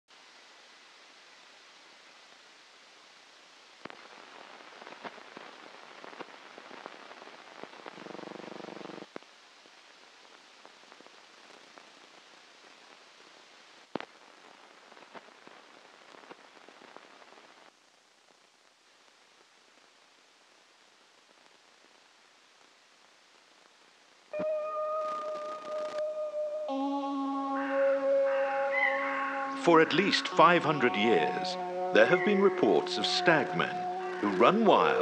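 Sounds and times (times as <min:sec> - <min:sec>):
crackles and pops: 0:00.1 - 0:26.8
film soundtrack hiss: 0:00.1 - 0:35.0.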